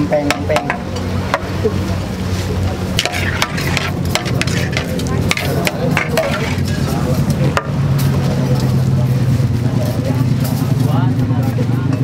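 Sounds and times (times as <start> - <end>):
metal spatula scraping a wok: 2.9 - 7.1.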